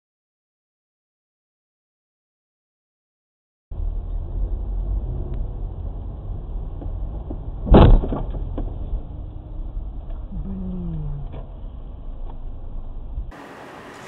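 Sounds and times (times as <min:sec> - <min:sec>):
car road and engine rumble: 0:03.7 - 0:14.0
loud short thump: 0:07.6 - 0:08.7.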